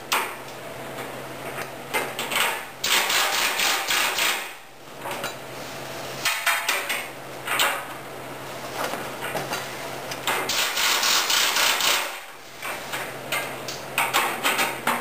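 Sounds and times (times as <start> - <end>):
pneumatic impact wrench hammering: 2.8 - 4.6, 10.4 - 12.3.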